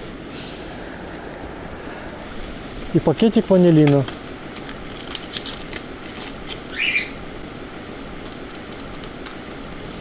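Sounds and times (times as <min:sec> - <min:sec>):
steady hiss: 0:00.0 - 0:10.0
paper sachet crackling and tearing: 0:04.9 - 0:06.6.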